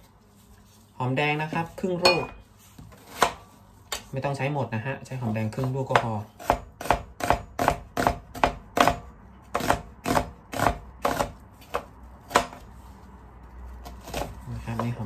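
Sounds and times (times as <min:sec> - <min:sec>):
knife slicing onion on board: 0:02.8 - 0:04.1, 0:05.6 - 0:12.7, 0:13.8 - 0:15.0.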